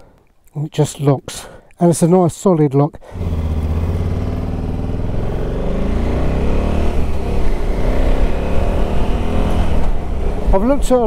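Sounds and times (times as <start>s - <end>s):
motorcycle engine accelerating: 3.1s - 10.9s.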